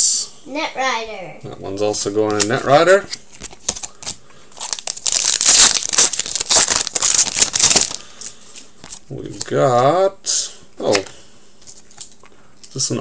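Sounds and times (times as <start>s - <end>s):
foil wrapper crinkling: 3.4s - 9.0s.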